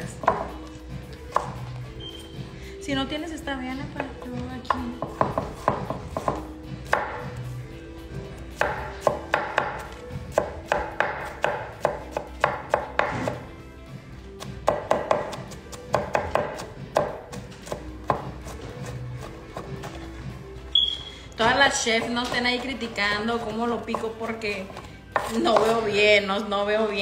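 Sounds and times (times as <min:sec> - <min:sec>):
knife chopping onion on board: 0:00.0 - 0:00.7, 0:01.3 - 0:01.7, 0:04.0 - 0:07.4, 0:08.5 - 0:13.5, 0:14.4 - 0:20.0, 0:21.4 - 0:25.9.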